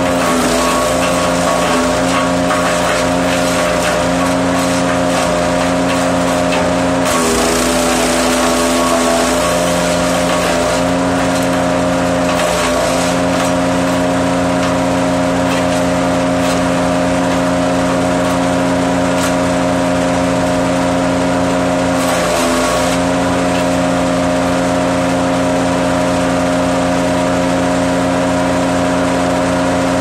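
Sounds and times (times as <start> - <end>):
wood cracking: 0.0 - 19.5
grinding hiss of shredding: 0.0 - 20.4, 21.9 - 23.9
wood chipper engine running: 0.0 - 30.0.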